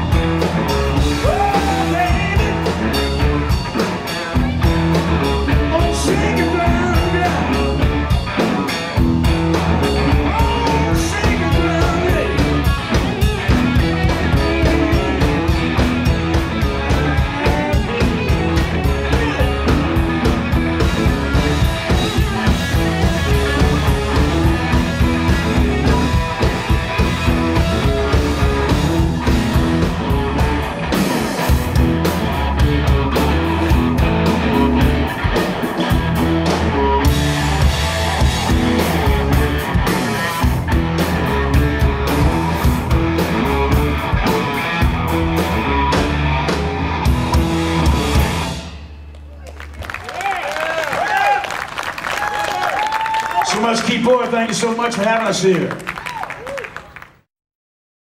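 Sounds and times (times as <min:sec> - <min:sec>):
drum kit beat: 0:00.0 - 0:49.0
electric guitars: 0:00.0 - 0:50.1
bass guitar: 0:00.0 - 0:54.2
person singing: 0:01.1 - 0:02.7, 0:10.0 - 0:12.5, 0:14.1 - 0:15.6.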